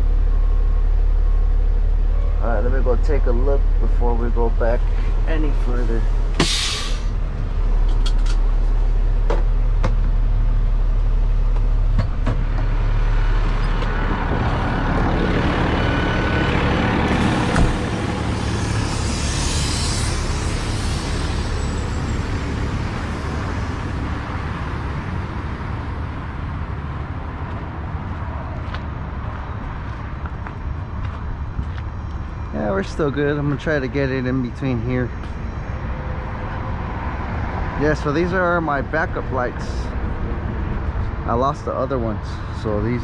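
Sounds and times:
diesel engine idling: 0.0 - 37.4
air brake hiss: 6.4 - 7.2.

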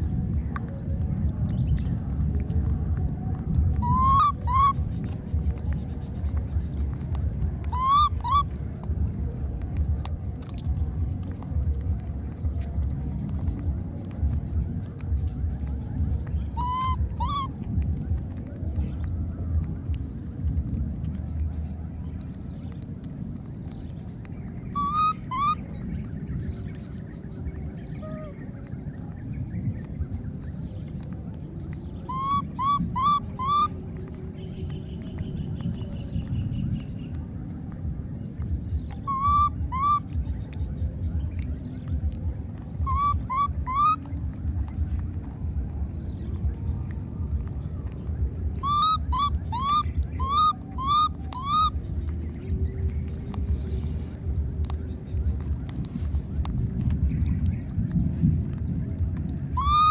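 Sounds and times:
low background rumble: 0.0 - 59.9
baby monkey coo calls: 3.8 - 5.2, 7.6 - 8.6, 16.5 - 18.4, 24.7 - 25.6, 28.0 - 28.4, 32.1 - 34.1, 38.9 - 40.2, 42.8 - 44.2, 48.5 - 51.8, 59.6 - 59.9.

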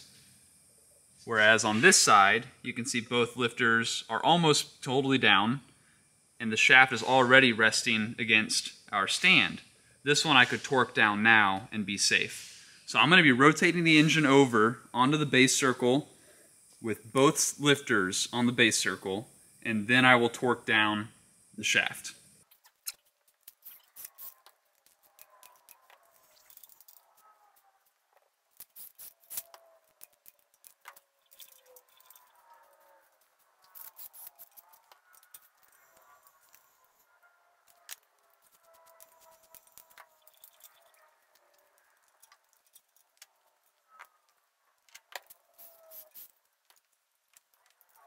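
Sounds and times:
faint metal clicks and clinks: 22.4 - 37.0, 37.6 - 48.0.

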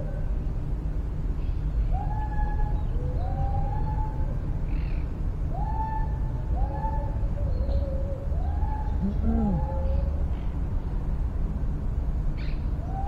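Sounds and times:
birds whistling rising calls: 1.4 - 10.2, 12.4 - 13.0
lower bird calls: 1.4 - 10.5, 12.4 - 13.0.

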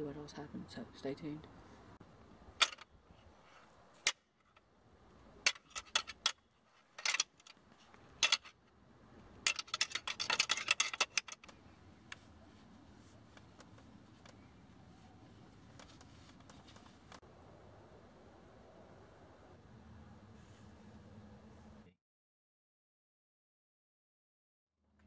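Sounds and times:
antlers clicking together: 5.4 - 7.6, 8.2 - 8.6, 9.4 - 12.2.

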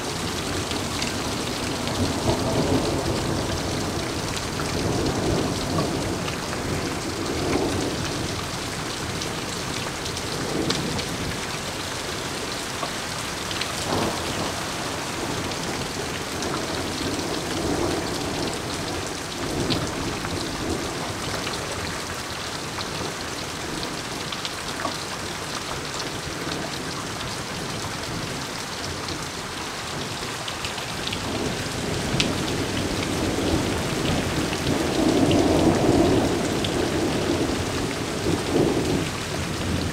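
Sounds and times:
heavy rain pouring: 0.0 - 39.9
thunder rumbling: 31.2 - 39.9.

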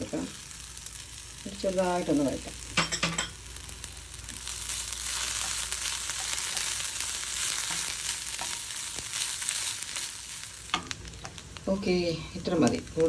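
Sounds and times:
food sizzling in a pan: 0.0 - 13.0
spatula stirring clicks: 5.3 - 9.2.

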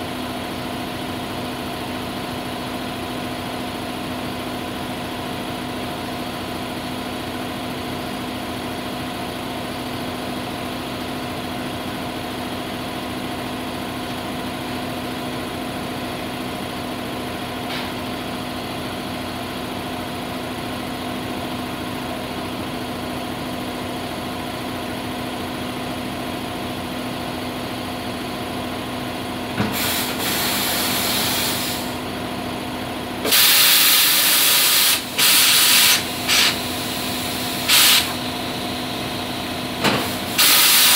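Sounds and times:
compressed air hissing: 29.7 - 32.0, 33.2 - 38.2, 39.9 - 40.9.

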